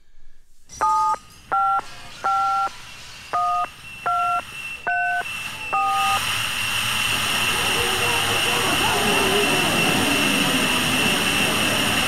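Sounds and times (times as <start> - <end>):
two-tone keypad beeps: 0.8 - 2.7, 3.4 - 6.2.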